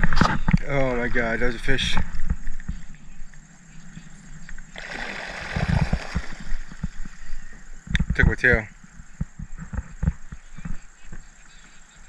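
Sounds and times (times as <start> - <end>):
water splashing and swishing: 4.7 - 7.3.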